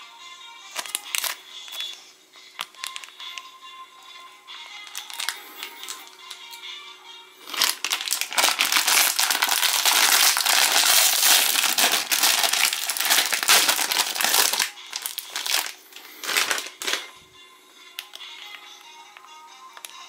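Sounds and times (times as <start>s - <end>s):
snack wrapper crinkling: 0.7s - 2.0s, 2.6s - 3.4s, 4.8s - 6.6s, 7.4s - 17.1s.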